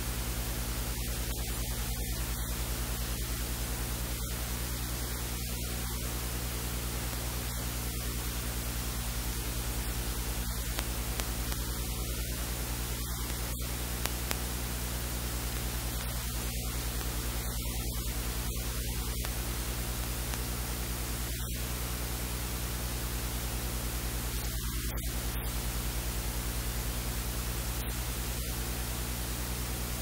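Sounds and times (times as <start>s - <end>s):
low electrical hum: 0.0s - 30.0s
steady hiss: 0.0s - 30.0s
faint clicks: 10.4s - 14.6s, 15.3s - 20.6s.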